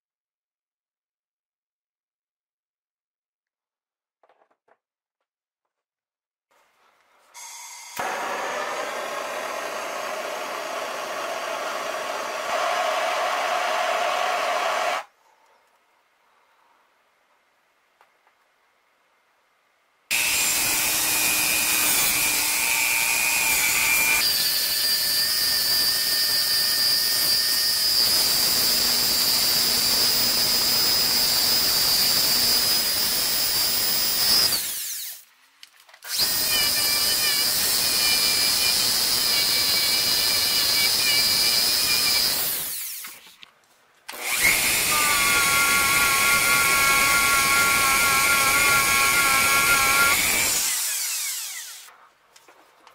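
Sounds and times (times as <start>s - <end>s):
power tool grinding brass: 7.4s - 15.1s, 20.1s - 35.2s, 36.1s - 43.0s, 44.2s - 51.9s.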